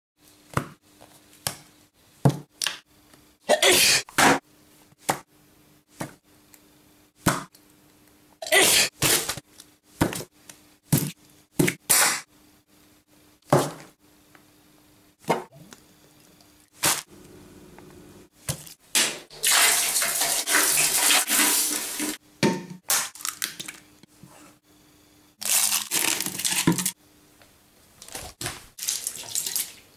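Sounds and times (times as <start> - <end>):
faint steady hum: 12.3 - 18.9, 23.3 - 28.2
squeeze bottles squirting: 25.4 - 26.9.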